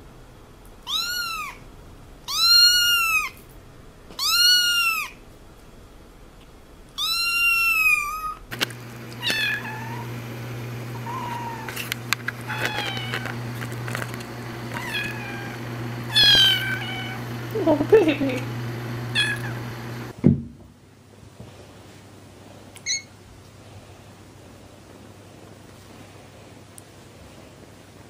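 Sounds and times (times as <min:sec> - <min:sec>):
kittens meowing: 0:00.9 - 0:01.6, 0:02.3 - 0:03.4, 0:04.2 - 0:05.2, 0:07.0 - 0:08.4, 0:09.2 - 0:10.1, 0:11.0 - 0:11.8, 0:12.4 - 0:13.4, 0:14.7 - 0:17.3, 0:19.2 - 0:19.6
steady low hum: 0:08.4 - 0:20.6
clicks: 0:08.5 - 0:09.5, 0:10.1 - 0:16.5.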